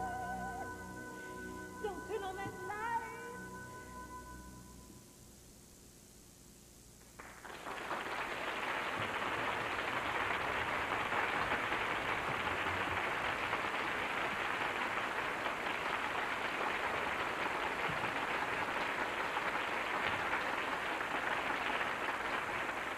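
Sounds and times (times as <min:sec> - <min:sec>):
audience applauding: 0:07.2 - 0:22.9.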